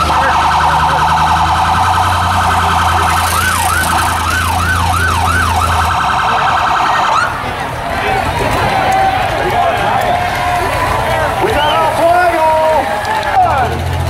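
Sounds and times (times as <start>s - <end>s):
electronic siren: 0.0s - 7.4s.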